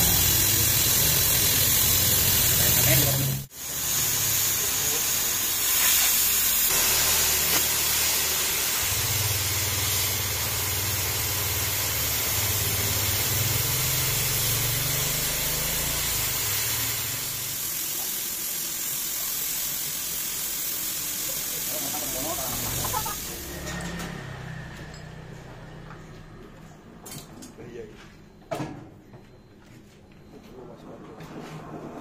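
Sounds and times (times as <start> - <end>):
cutting torch hissing: 0.0 - 24.2.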